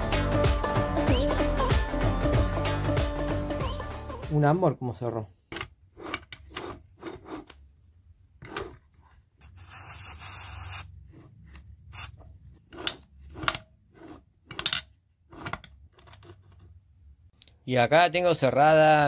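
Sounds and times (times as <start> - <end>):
metal rasping rub: 5.5 - 7.7, 8.4 - 16.7.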